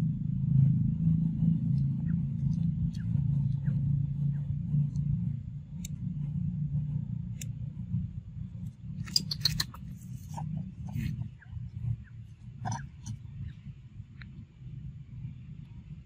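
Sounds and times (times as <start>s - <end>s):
steady low rumble: 0.0s - 16.0s
sharp clicks: 9.0s - 10.0s.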